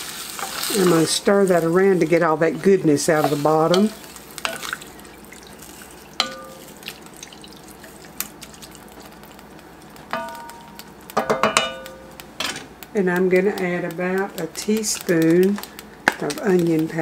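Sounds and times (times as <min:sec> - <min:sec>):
spoon stirring wet sloshing: 0:02.6 - 0:09.4
spoon knocking pot with ringing: 0:06.2 - 0:06.6, 0:10.1 - 0:12.0.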